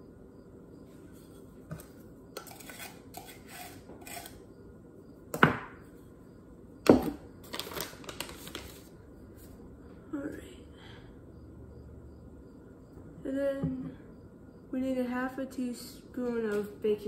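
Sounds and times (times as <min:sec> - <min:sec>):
knife scraping measuring cup: 0:01.7 - 0:04.4.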